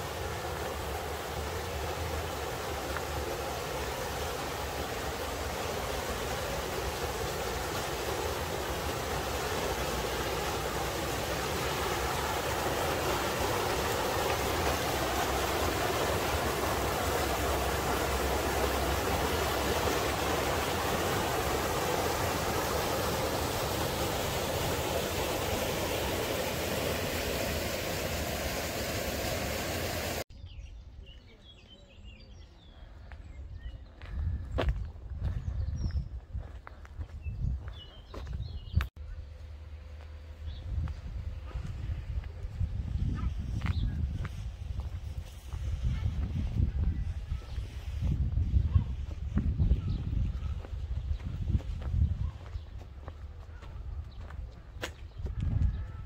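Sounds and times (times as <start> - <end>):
water rushing through sluice: 0.0 - 30.2.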